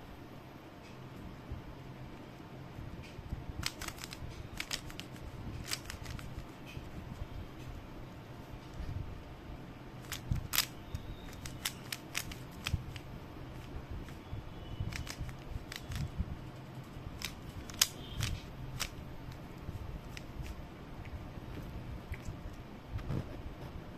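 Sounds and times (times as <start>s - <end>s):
puzzle cube clicking as turned: 3.6s - 6.5s, 10.0s - 13.0s, 14.9s - 16.1s, 17.2s - 19.4s.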